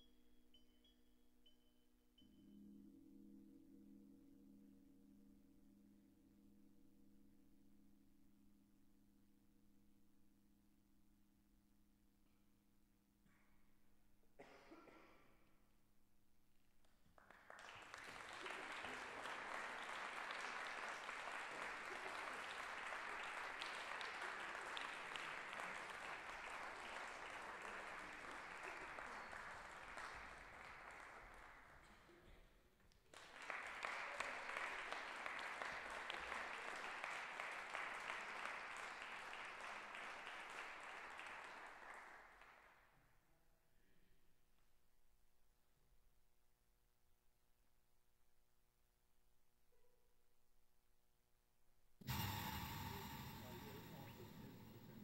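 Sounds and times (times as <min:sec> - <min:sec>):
audience applauding: 0:17.0 - 0:32.4, 0:33.0 - 0:42.7, 0:52.1 - 0:55.0.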